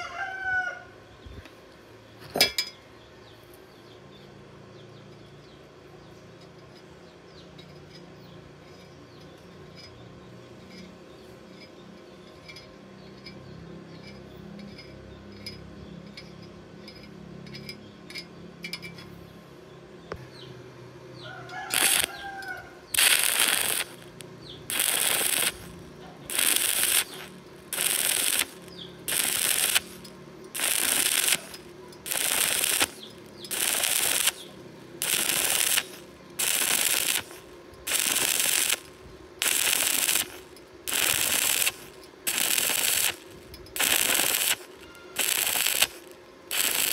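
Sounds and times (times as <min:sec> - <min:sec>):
welding arc crackling: 0:21.5 - 0:46.9.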